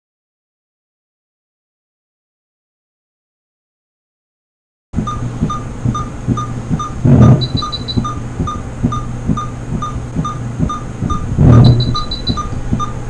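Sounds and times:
patient monitor beeping: 5.0s - 13.0s
soft heartbeat throb: 5.0s - 13.0s
steady low hum: 5.0s - 13.0s.

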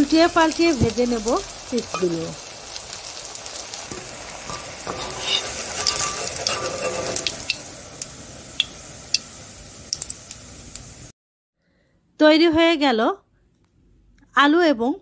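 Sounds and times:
chips deep-frying in hot oil: 0.0s - 11.1s.

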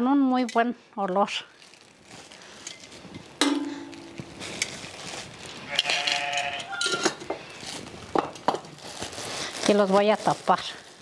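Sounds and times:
plastic bag rustling: 1.1s - 11.0s
farm animal bleating: 5.7s - 6.8s.

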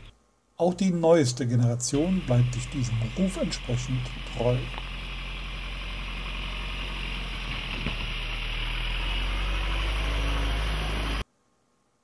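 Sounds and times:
diesel engine idling: 2.0s - 11.2s.

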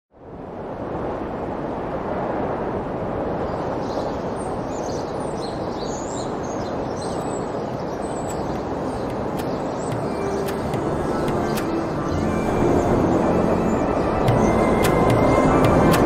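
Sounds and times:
steady rushing noise: 0.1s - 16.0s
small birds chirping: 3.4s - 16.0s
sharp clicks: 8.2s - 11.8s, 14.8s - 16.0s.

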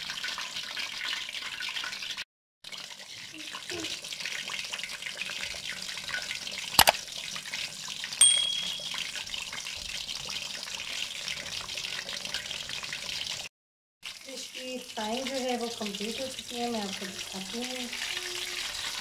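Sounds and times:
fish deep-frying sizzle: 0.0s - 8.2s, 8.8s - 19.0s
short high ding: 8.2s - 9.2s.

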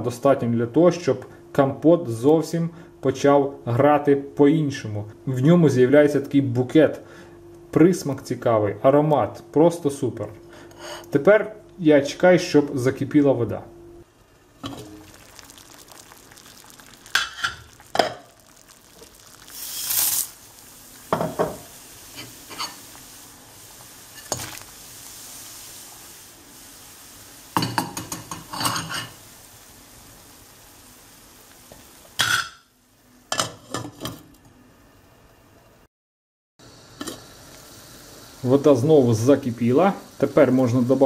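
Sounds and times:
water hissing on gas burner: 14.4s - 32.4s, 36.6s - 41.0s.

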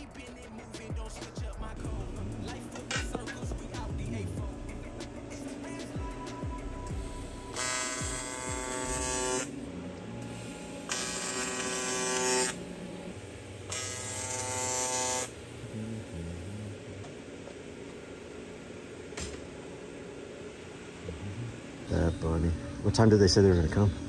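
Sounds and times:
welding arc buzzing: 0.0s - 16.2s.

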